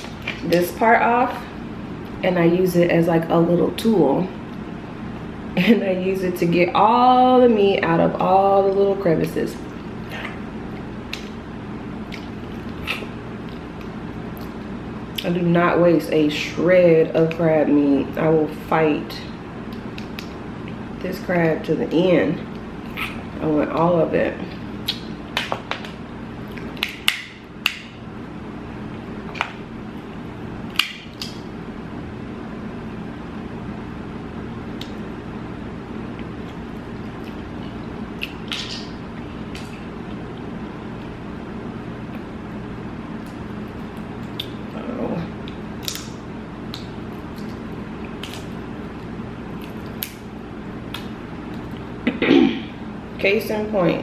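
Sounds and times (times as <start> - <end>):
low room hum: 0.0 - 54.0
crab shells cracking: 45.8 - 48.5.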